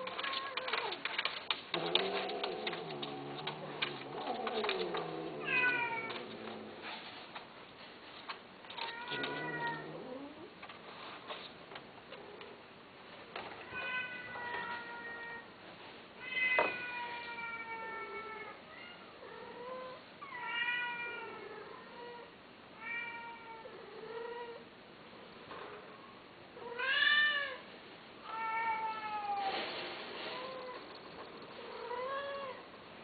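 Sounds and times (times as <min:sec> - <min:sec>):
cat meowing: 0:02.0 - 0:06.4, 0:08.7 - 0:10.5.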